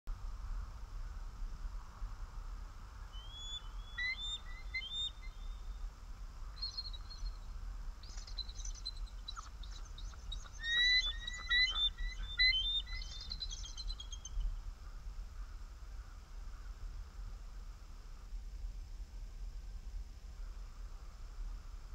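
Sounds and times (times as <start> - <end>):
eagles chattering calls: 3.2 - 5.4, 9.2 - 14.2.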